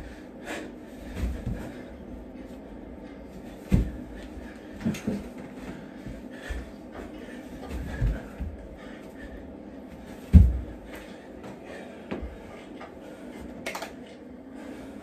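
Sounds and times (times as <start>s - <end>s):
thumps on a carpeted floor: 3.7s - 4.1s, 10.3s - 10.8s.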